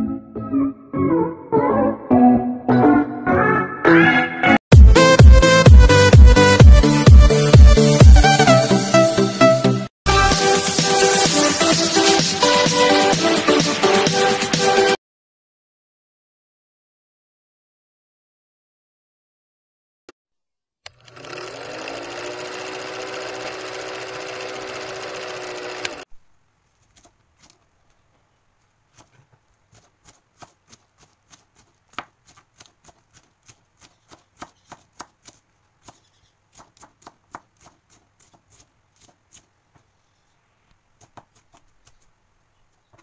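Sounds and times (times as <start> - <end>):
knife chopping cabbage on board: 28.9 - 39.9, 41.0 - 42.1.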